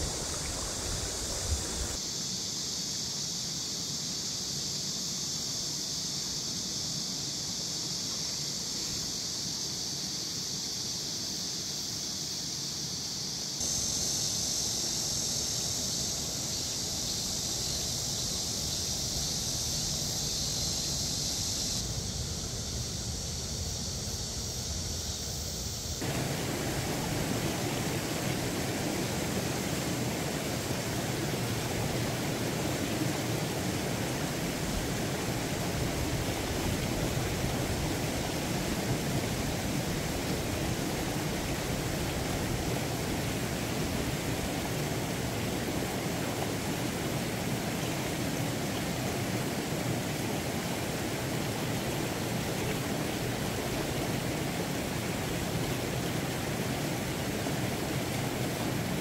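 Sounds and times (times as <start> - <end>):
stream running over boulders: 0.0 - 2.0, 25.6 - 59.0
water pouring down a cascade: 0.0 - 2.0, 26.0 - 59.0.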